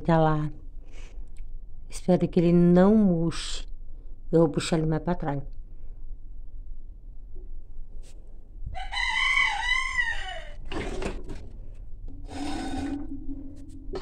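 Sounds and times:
rooster crowing: 8.7 - 10.6
pan scraping metal oven rack: 12.2 - 13.2.

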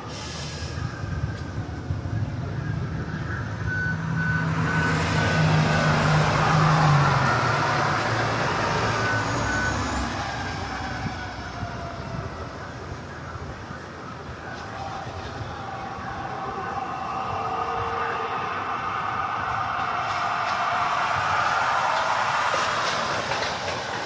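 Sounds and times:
truck engine rumbling: 0.0 - 24.0
reversing alarm beeping: 0.1 - 12.4.

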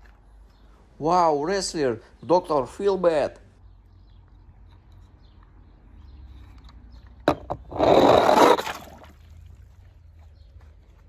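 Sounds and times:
toy car rushing scrape: 7.6 - 8.9.

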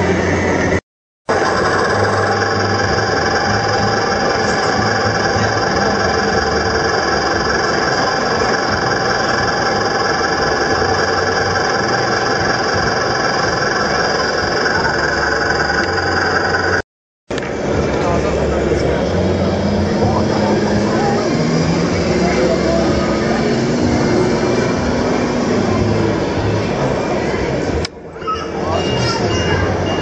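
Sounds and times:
steady high tones: 1.3 - 16.8
toy truck engine idling: 1.3 - 16.8, 17.7 - 30.0.

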